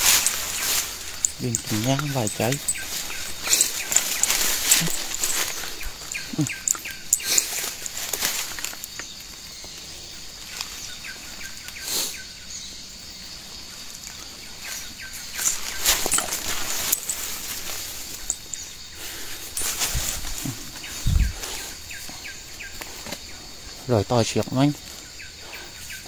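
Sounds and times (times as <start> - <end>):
high-pitched forest drone: 0.0 - 8.8
branches rustling and snapping: 0.0 - 11.8, 13.8 - 23.3.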